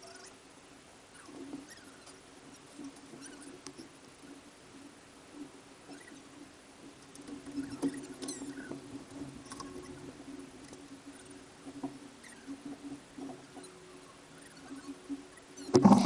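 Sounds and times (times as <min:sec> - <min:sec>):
faint clicks and scrapes: 0:01.1 - 0:16.0.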